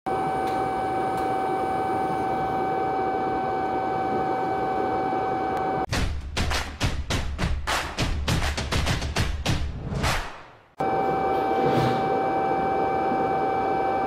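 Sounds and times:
music with drum hits: 0:05.9 - 0:10.4.

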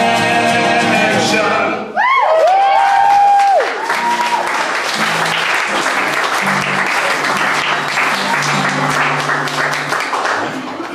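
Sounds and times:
audience applause: 0:02.2 - 0:10.9.

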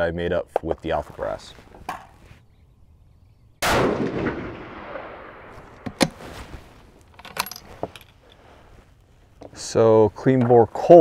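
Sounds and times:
rifle shot: 0:03.6 - 0:06.2.

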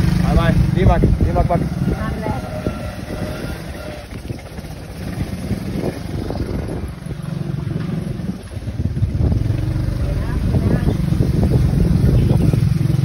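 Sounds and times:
scooter engine running: 0:00.0 - 0:13.0.

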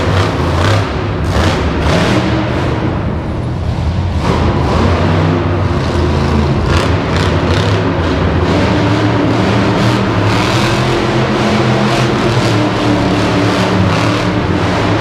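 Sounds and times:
monster truck engines revving: 0:00.0 - 0:15.0.

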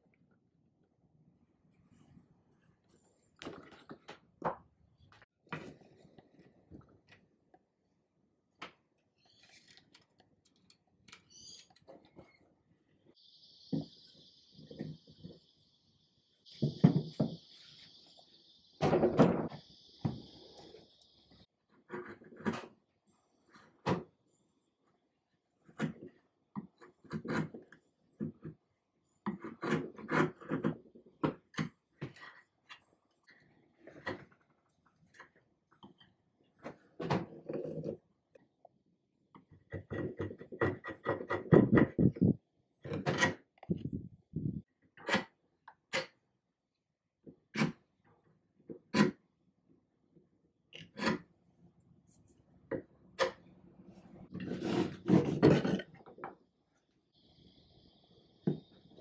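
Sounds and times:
faint high chirps: 0:13.1 - 0:21.5.

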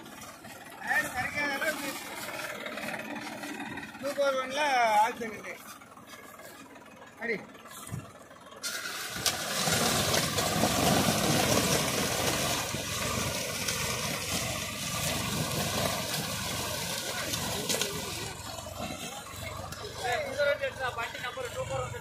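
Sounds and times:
tractor engine under load: 0:00.0 - 0:22.0.

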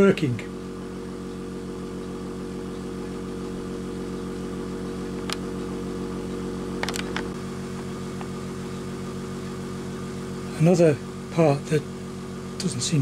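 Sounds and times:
air compressor running: 0:00.0 - 0:13.0
sharp clicks: 0:05.2 - 0:05.4, 0:06.8 - 0:07.4.

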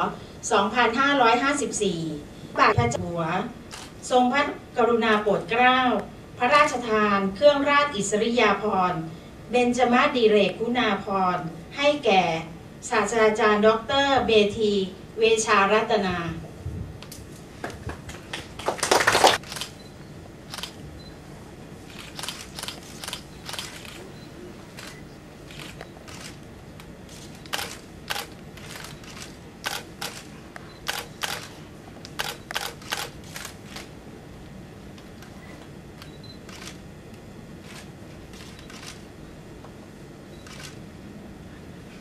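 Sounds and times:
camera shutters clicking: 0:19.4 - 0:19.8, 0:20.5 - 0:20.8, 0:21.9 - 0:24.1, 0:24.8 - 0:26.4, 0:27.1 - 0:33.9, 0:36.0 - 0:36.8, 0:37.6 - 0:39.0, 0:40.4 - 0:40.8.

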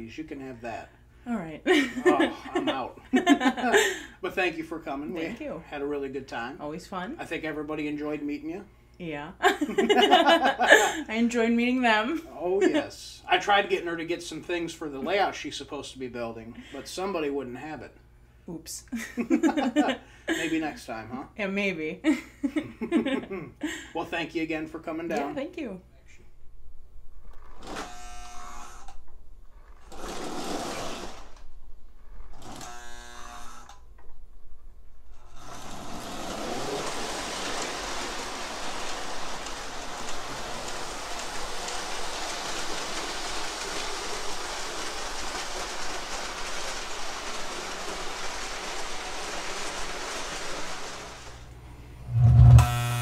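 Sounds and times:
model train running on rails: 0:35.9 - 0:51.5
model train horn blasts: 0:52.2 - 0:53.0.

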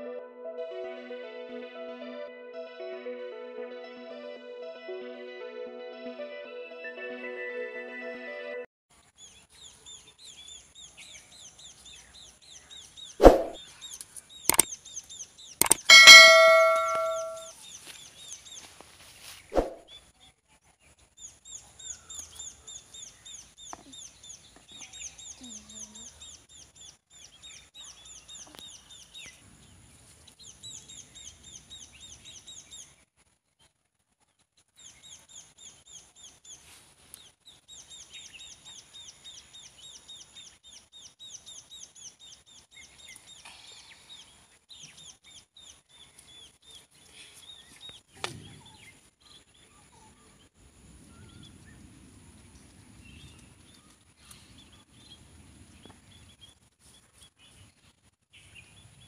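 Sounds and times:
bird chirping: 0:09.2 - 0:18.5
bright bell-like ding: 0:15.6 - 0:17.5
button clicks: 0:15.6 - 0:17.5.

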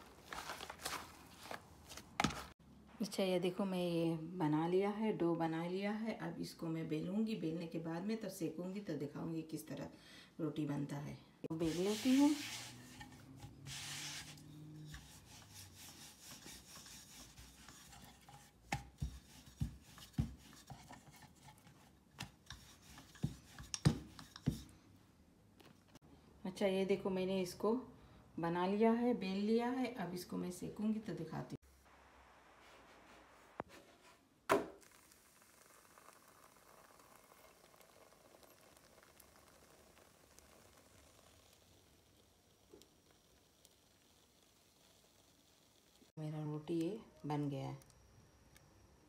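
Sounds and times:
bread sizzling with crackles: 0:00.0 - 0:02.6, 0:11.5 - 0:24.8, 0:31.6 - 0:46.2
rolling pin rubbing dough: 0:11.5 - 0:24.7.

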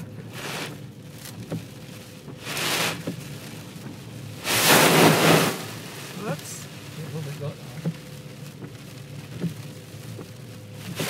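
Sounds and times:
sea spray dashing against windscreen: 0:00.0 - 0:11.0.

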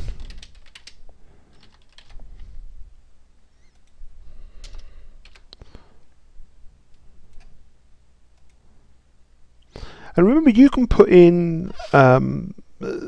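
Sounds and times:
keyboard typing: 0:00.0 - 0:02.2, 0:04.6 - 0:05.6.

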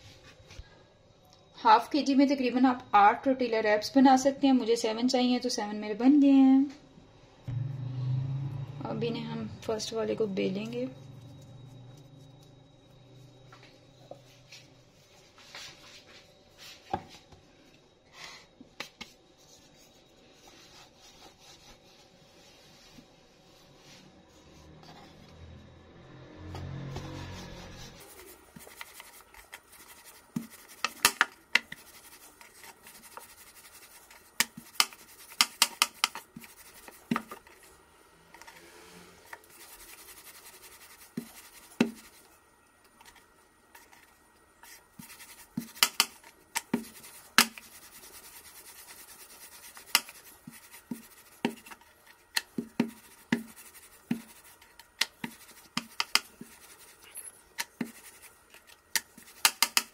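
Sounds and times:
faint scraping: 0:38.3 - 0:42.3.

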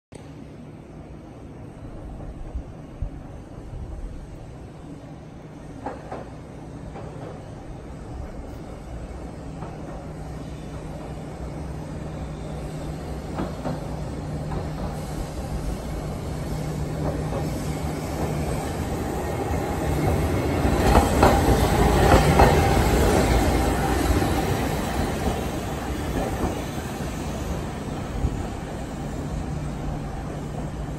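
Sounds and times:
streetcar wheels clattering on rails: 0:05.7 - 0:11.6, 0:12.9 - 0:30.9.

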